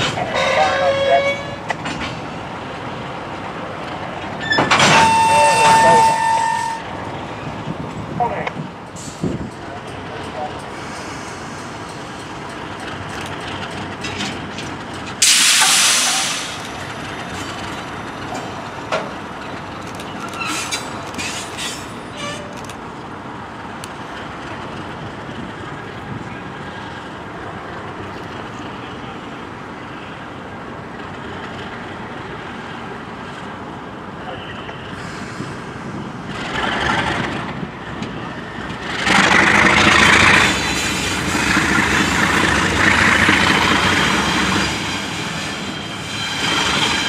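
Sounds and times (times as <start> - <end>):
diesel locomotive idling: 0.0 - 47.0
air brake hissing: 10.7 - 11.8, 15.2 - 16.7, 35.0 - 35.8.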